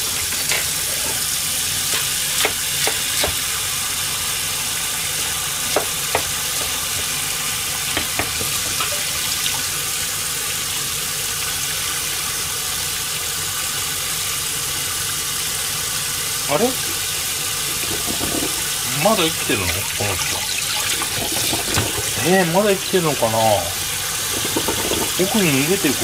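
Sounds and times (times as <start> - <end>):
tap water splashing into strainer: 16.8 - 18.8, 19.6 - 22.3, 24.2 - 26.0.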